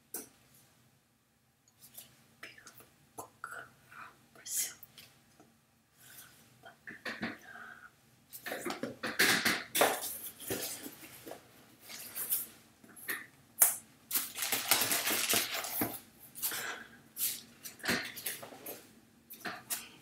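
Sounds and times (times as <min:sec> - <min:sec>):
packaging crinkling and rustling: 0:14.1 - 0:16.0.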